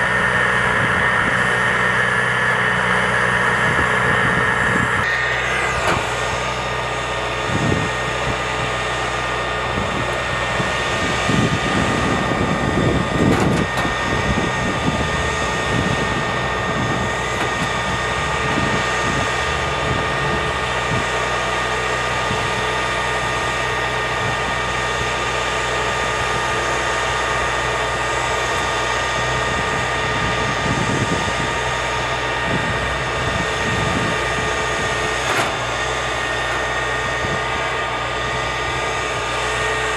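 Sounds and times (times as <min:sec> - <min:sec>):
vehicle engine high whine: 0:00.0 - 0:39.9
low rumbles and knocks: 0:09.8 - 0:21.2.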